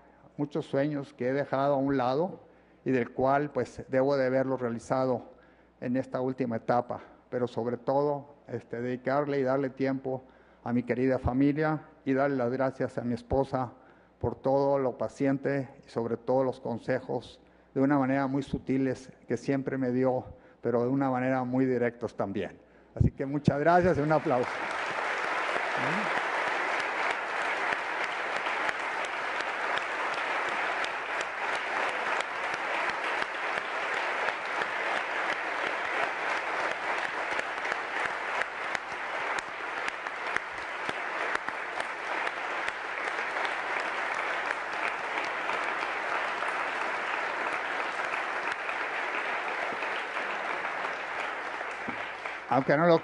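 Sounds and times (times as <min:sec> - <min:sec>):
audience applauding: 0:23.6 - 0:53.0.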